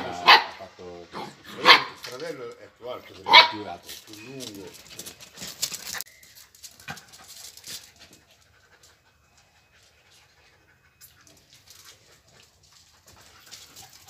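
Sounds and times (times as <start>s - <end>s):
dog panting: 6.9s - 14.0s.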